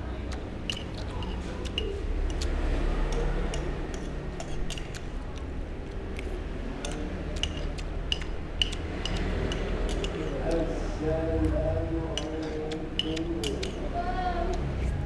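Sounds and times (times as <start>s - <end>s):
low steady hum: 0.0s - 15.0s
cutlery scraping a ceramic plate: 3.1s - 5.1s, 6.8s - 10.4s.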